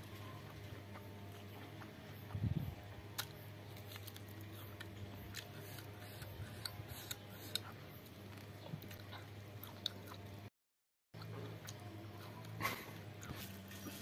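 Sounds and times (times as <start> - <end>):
chewing food: 0.0 - 10.5, 11.2 - 14.0
low steady hum: 0.0 - 10.5.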